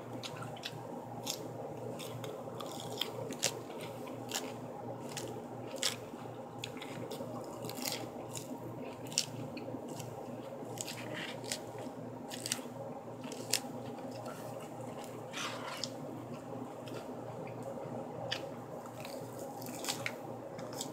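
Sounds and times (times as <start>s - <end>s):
crunchy chewing: 0.0s - 20.9s
steady low hum: 0.0s - 20.9s
fork stabbing lettuce leaves: 0.2s - 10.1s, 10.7s - 16.0s.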